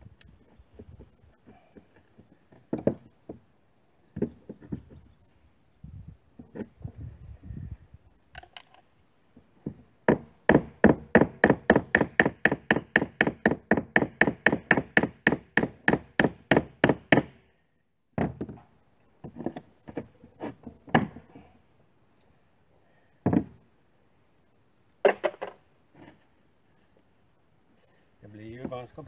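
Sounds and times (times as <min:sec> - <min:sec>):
scattered knocks: 0:00.8 - 0:03.4, 0:09.6 - 0:17.4, 0:18.2 - 0:18.6
hammer driving nails into wood: 0:09.6 - 0:17.4.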